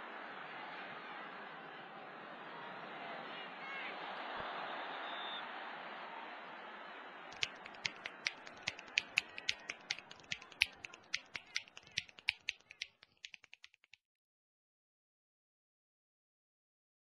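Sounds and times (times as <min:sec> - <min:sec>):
rapid finger snapping: 0:07.3 - 0:14.0.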